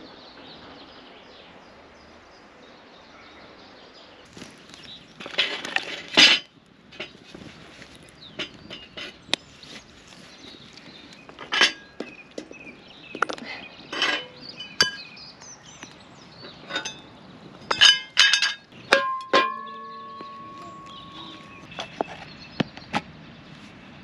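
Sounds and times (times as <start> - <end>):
cast iron rings clanking: 5.2 - 9.6, 10.9 - 15.3, 16.4 - 22.1.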